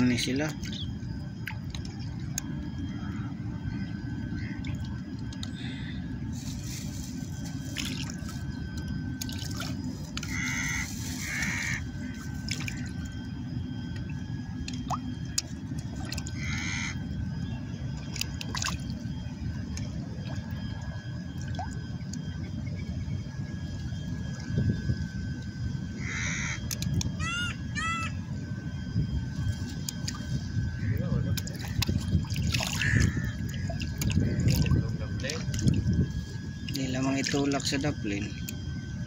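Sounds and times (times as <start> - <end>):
steady low rumble: 0.0 - 39.0
water splashing and dripping: 12.4 - 12.9, 18.1 - 18.9, 31.4 - 34.8.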